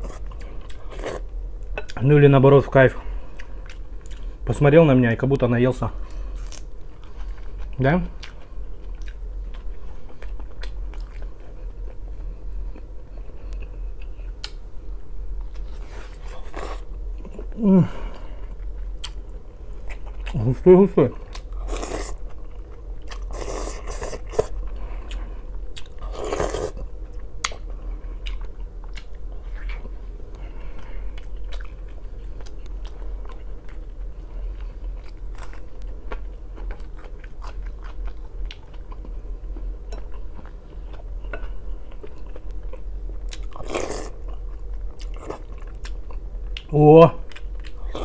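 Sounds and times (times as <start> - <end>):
wet chewing: 6.4 - 11.4.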